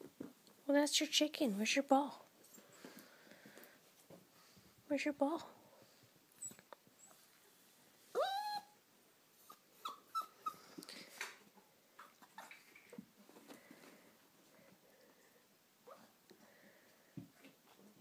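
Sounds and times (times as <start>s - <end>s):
puppy whining: 6.3s - 7.4s, 8.1s - 8.8s, 9.4s - 10.9s, 12.0s - 13.0s, 15.8s - 16.2s.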